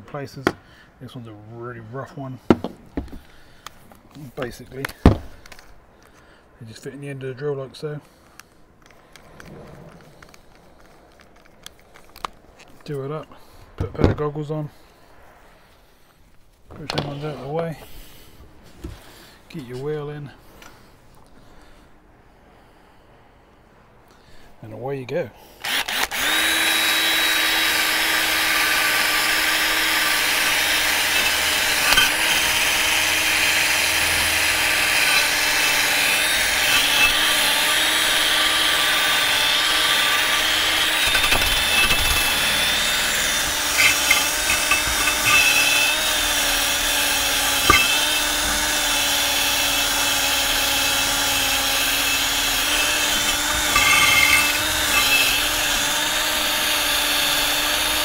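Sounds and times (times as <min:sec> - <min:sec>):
electric drill motor running: 0:25.6 - 0:58.0
wire brush rasping on metal: 0:27.7 - 0:58.0.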